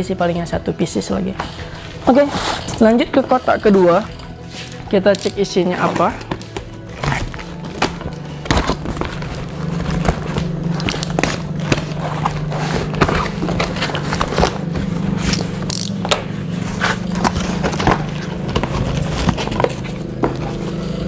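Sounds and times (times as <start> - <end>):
steady low hum: 0.0 - 21.0
plastic packages rustling: 1.4 - 21.0
cardboard flaps scraping: 1.5 - 2.9, 5.8 - 21.0.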